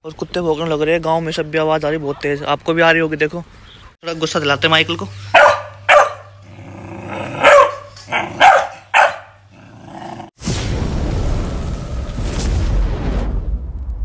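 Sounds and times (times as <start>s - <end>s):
dog barking: 5.3s - 6.4s, 7.4s - 9.4s.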